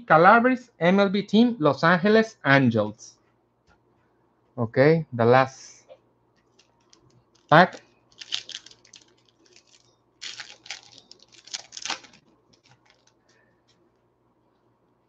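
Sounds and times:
foil wrapper crinkling and tearing: 6.5s - 13.4s.

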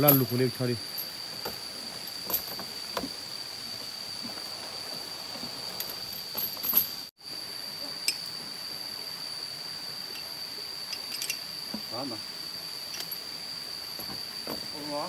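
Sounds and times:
heavy chain clanking: 0.0s - 2.8s, 5.2s - 7.1s.

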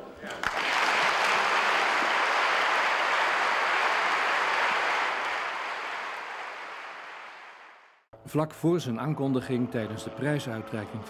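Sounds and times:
audience applauding: 0.4s - 8.0s.

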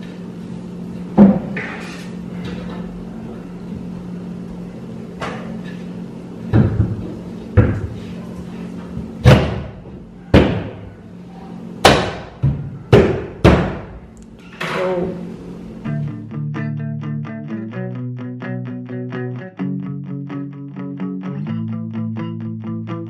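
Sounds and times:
palms knocking wooden panel: 11.8s - 14.0s.

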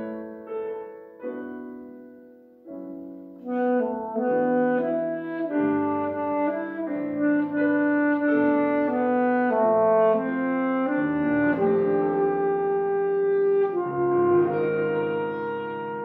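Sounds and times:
grand piano: 0.0s - 16.0s
alto saxophone melody: 3.4s - 16.0s.

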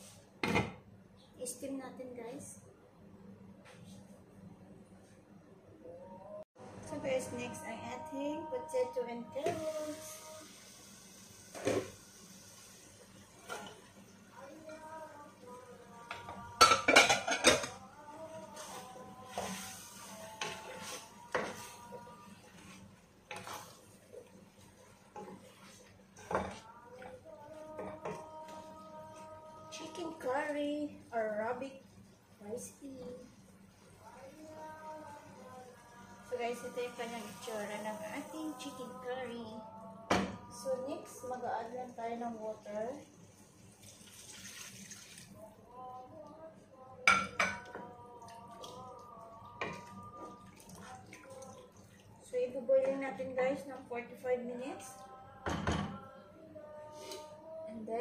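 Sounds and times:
wooden spoon stirring a pot: 13.1s - 39.0s, 47.4s - 53.3s
wooden spatula scraping pot: 18.3s - 27.2s
water pouring into a pot: 43.2s - 45.4s, 49.7s - 52.2s.

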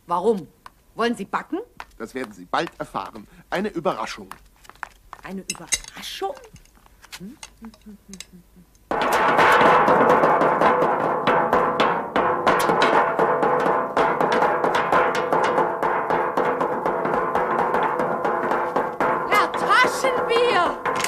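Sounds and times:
loud fast drumming with kitchen utensils: 8.9s - 21.0s.

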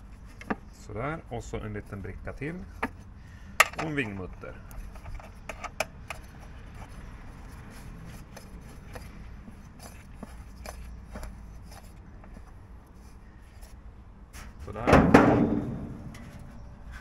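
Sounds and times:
metal clicks and taps: 3.6s - 6.4s
low background rumble: 14.9s - 17.0s.

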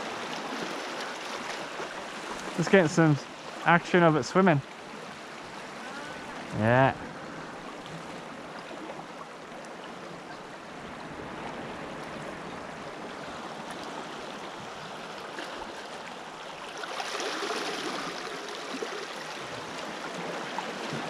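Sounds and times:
surge of water: 0.0s - 21.0s
small waves washing among rocks: 11.0s - 21.0s.

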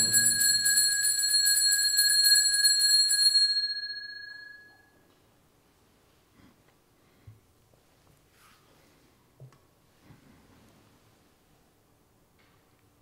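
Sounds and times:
altar bells ringing: 0.0s - 4.9s.

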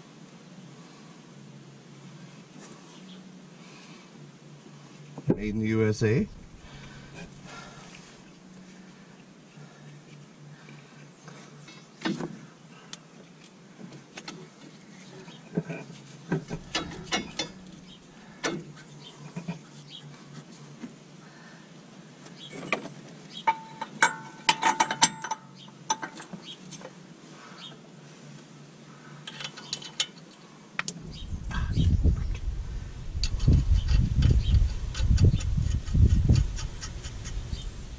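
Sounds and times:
low steady hum: 0.0s - 37.9s
metal tool clinks and knocks: 23.5s - 26.3s.

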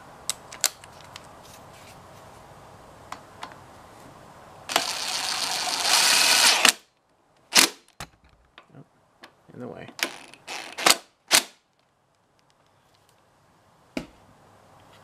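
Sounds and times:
camera handling rubbing noise: 0.8s - 2.4s.

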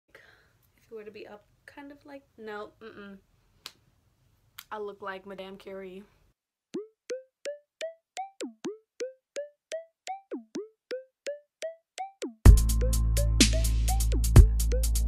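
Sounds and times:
plucked synthesized notes: 6.8s - 15.0s
music track with deep bass: 12.0s - 15.0s.

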